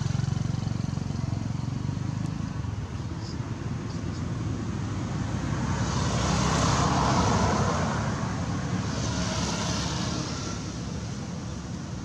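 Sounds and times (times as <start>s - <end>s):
vehicle passing by: 4.3s - 12.0s.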